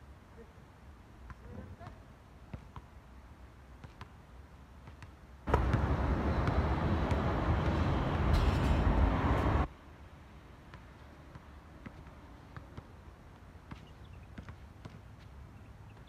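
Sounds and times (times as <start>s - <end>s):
loud low rushing noise: 5.5s - 9.7s
sneaker steps on court: 13.6s - 16.0s.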